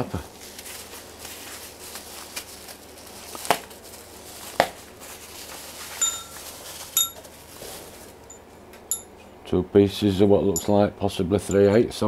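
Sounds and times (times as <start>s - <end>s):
bubble wrap crinkling: 0.0s - 8.3s
steel bars clinking: 6.0s - 6.4s, 7.0s - 7.2s, 8.3s - 9.2s, 10.6s - 10.8s, 11.4s - 11.9s.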